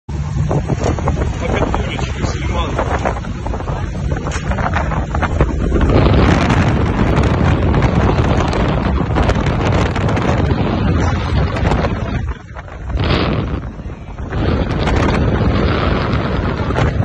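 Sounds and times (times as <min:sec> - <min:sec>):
military vehicle driving fast: 0:00.1 - 0:17.0
wind buffeting microphone: 0:00.1 - 0:17.0.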